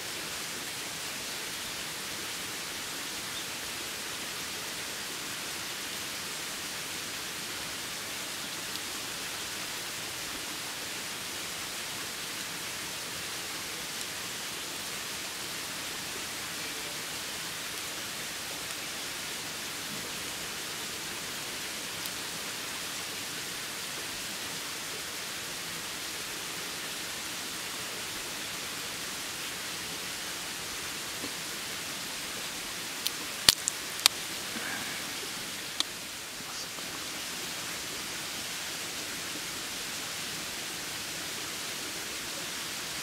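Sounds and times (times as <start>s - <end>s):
steady hiss: 0.0s - 43.0s
crab shell cracking: 33.4s - 34.2s.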